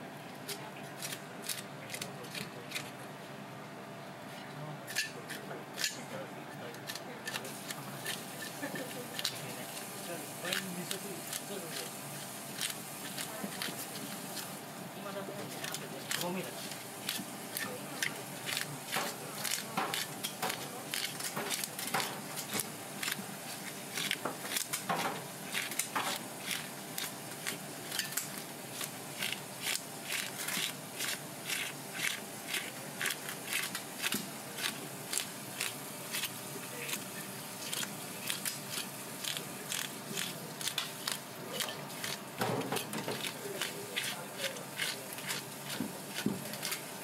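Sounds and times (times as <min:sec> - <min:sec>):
fish scaler scraping scales: 0:15.5 - 0:46.8.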